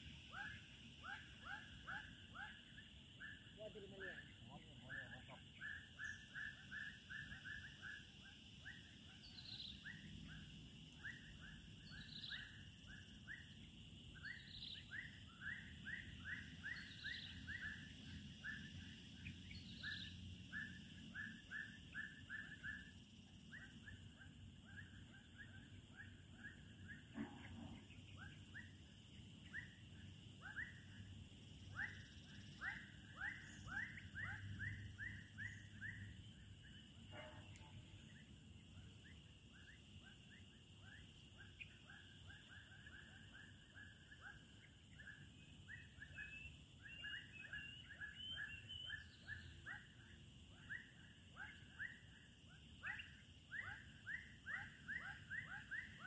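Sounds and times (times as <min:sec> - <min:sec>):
insect drone: 0:00.0 - 0:56.0
short chirping calls: 0:14.2 - 0:52.1.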